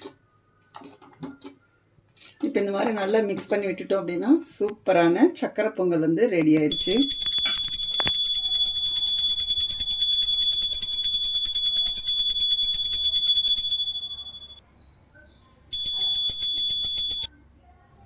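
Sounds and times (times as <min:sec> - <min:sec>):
high-pitched metal bell ringing: 0:06.7 - 0:14.6, 0:15.7 - 0:17.3.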